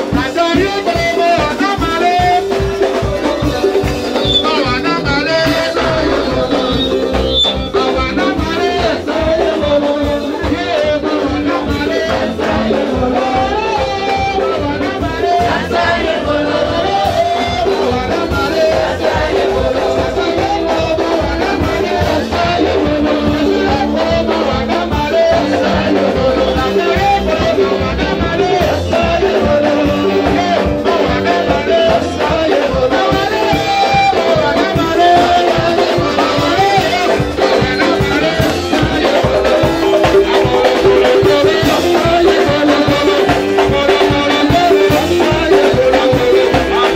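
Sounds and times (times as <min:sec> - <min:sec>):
band with drum kit: 0:00.0 - 0:46.9
voices singing over loudspeakers: 0:00.0 - 0:46.9.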